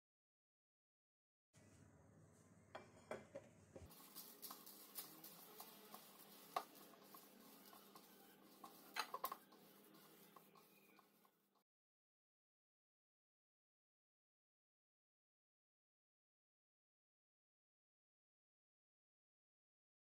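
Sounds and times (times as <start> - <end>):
food worked in plastic bowl: 2.7 - 11.6
hands patting dough: 3.8 - 11.6.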